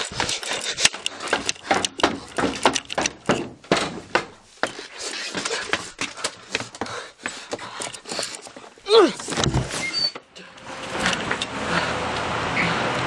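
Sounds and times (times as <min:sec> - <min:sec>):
knocks scrapes and rustling: 0:07.9 - 0:10.1.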